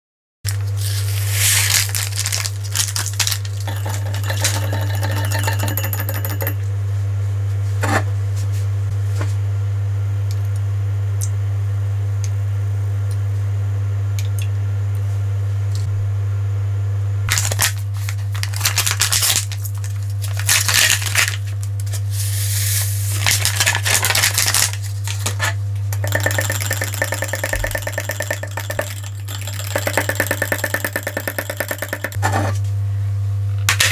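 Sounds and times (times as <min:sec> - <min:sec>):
wire whisk rattling in glass jug: 0:02.2 - 0:06.6, 0:26.0 - 0:32.2
glassware and plastic cups clinking: 0:03.1 - 0:06.6, 0:26.0 - 0:32.2
steady low hum: 0:26.0 - 0:32.2.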